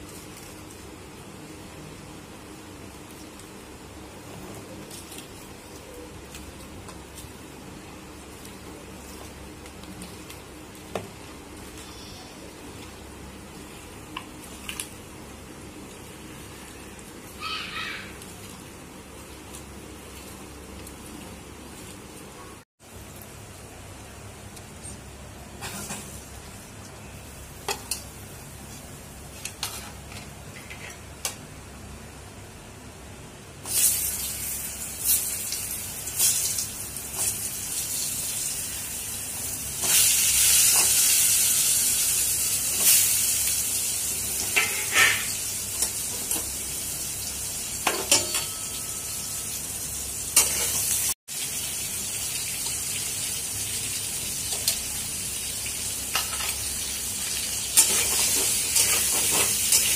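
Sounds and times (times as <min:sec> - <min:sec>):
food sizzling in oil: 0:25.6 - 0:26.5, 0:33.6 - 0:59.9.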